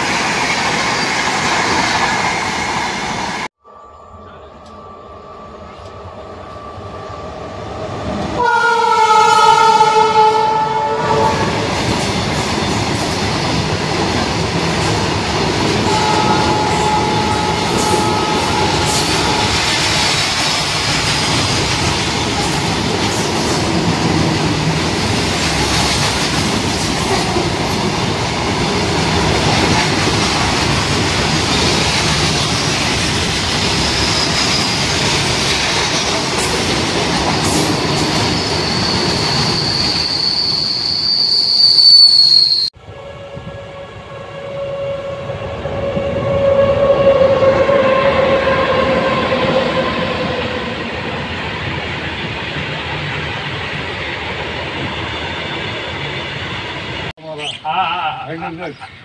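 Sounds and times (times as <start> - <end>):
train running past: 0.0 - 57.1
train horn blast: 8.4 - 11.7, 15.8 - 20.1, 42.8 - 50.8.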